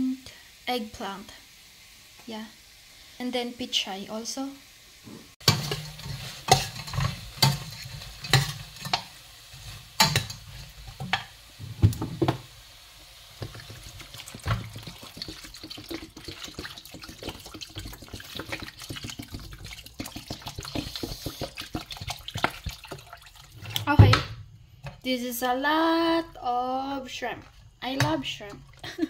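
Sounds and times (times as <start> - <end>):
shrimp sizzling in pot: 0.0 - 29.0
water pouring into pot: 12.0 - 23.9, 27.2 - 29.0.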